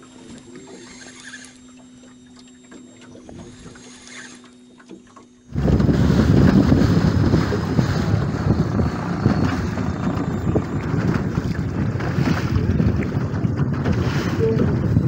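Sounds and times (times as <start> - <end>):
water rushing past boat hull: 5.0 - 15.0
wind buffeting microphone: 5.5 - 15.0.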